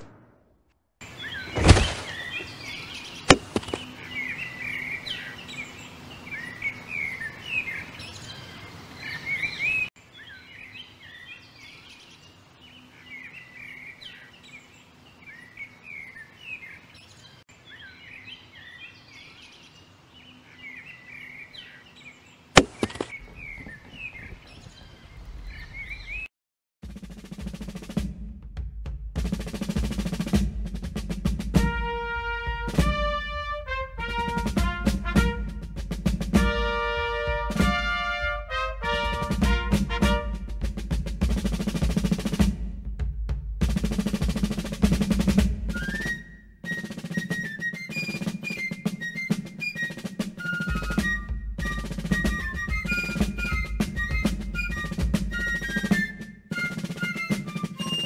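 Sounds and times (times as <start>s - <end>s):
sharp cracks: 0.0s - 0.8s, 22.6s - 23.2s
faint outdoor ambience: 0.0s - 26.3s
small birds chirping: 1.0s - 26.3s, 45.8s - 58.0s.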